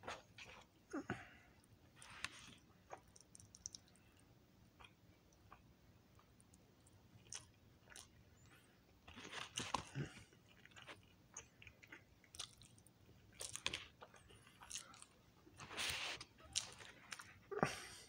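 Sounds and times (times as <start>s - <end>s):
person chewing crunchy food: 7.2s - 17.5s.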